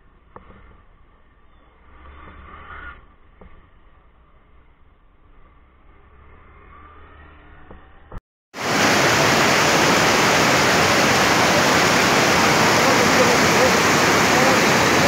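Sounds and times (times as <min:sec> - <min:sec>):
stream rushing over boulders: 0:08.6 - 0:15.0.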